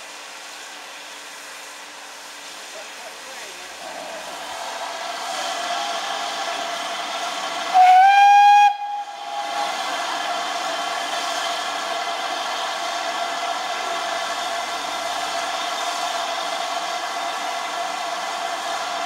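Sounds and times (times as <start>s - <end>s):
steam hissing: 0.0s - 19.0s
steam locomotive whistle: 7.7s - 10.2s.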